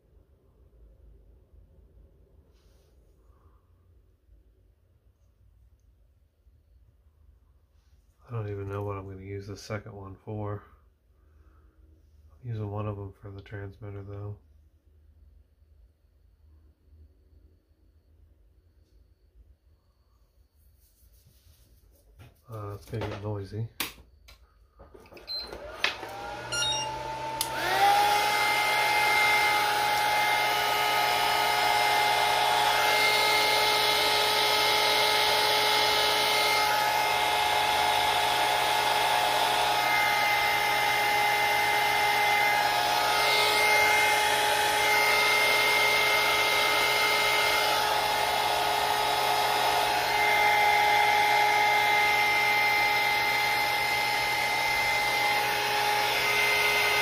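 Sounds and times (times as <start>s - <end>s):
heat gun fan whining: 24.8s - 57.0s.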